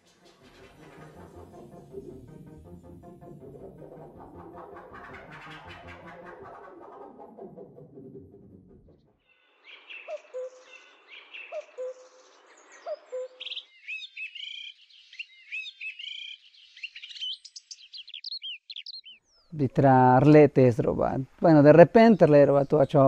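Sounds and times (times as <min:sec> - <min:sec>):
songbird chirping: 0:09.2 - 0:23.0
low hooting bird call: 0:09.6 - 0:19.6.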